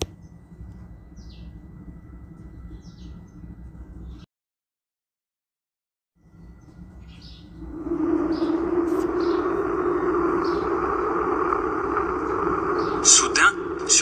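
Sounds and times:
high bird chirps: 6.2 - 14.0
rushing background noise: 7.4 - 14.0.

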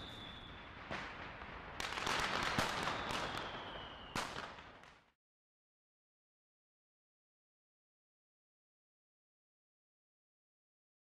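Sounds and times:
descending firework whistle: 0.0 - 0.8, 2.4 - 4.6
firework bangs: 0.0 - 5.1
firework crackling: 0.0 - 5.1.

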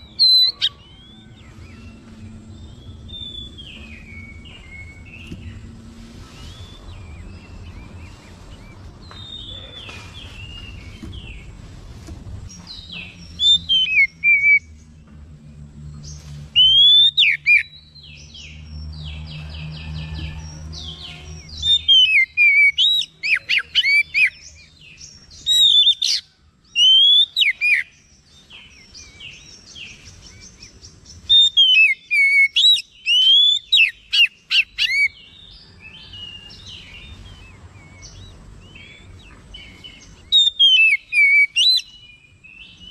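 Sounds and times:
bird singing whistled phrases: 13.4 - 14.7, 31.3 - 35.2, 40.3 - 42.0.

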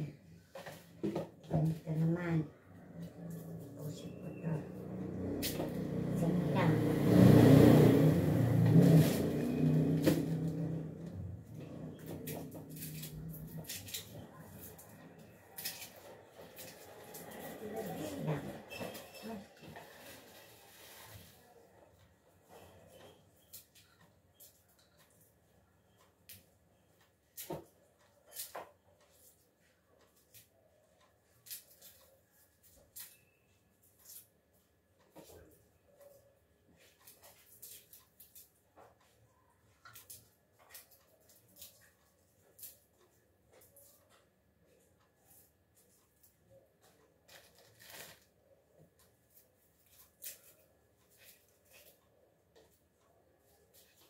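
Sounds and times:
garlic skins crackling: 47.3 - 48.4.

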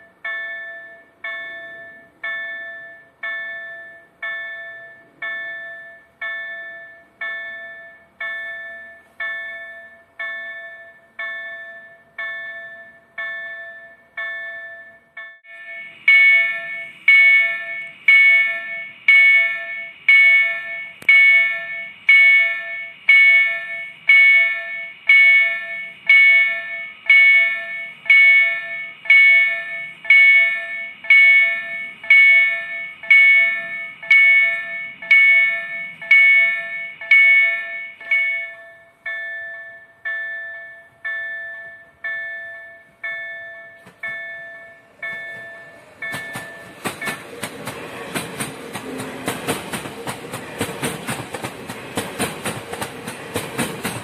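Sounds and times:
level-crossing warning bell: 0.0 - 54.0.

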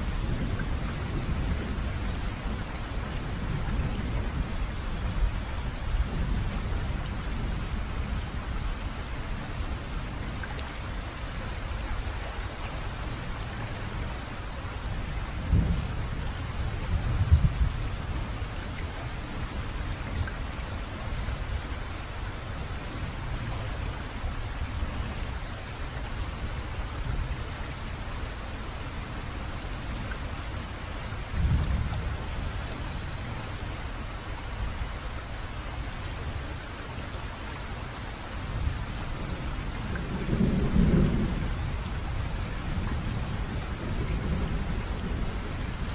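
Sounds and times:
steady rain: 0.0 - 45.9.

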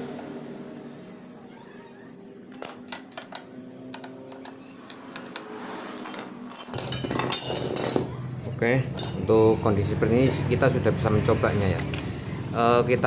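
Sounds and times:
metal tools clinking on engine: 2.4 - 8.2, 8.8 - 9.5, 11.7 - 12.3.

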